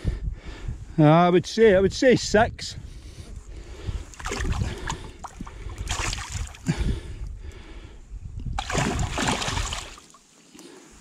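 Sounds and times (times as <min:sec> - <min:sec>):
fish splashing at water surface: 0:04.2 - 0:06.6, 0:08.6 - 0:10.2.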